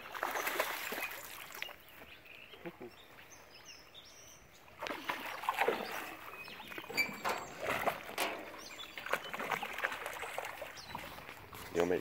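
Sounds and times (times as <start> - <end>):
fish splashing at water surface: 4.8 - 11.4.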